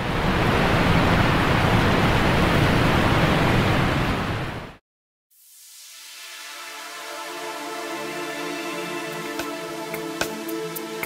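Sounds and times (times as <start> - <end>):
music: 5.8 - 11.0.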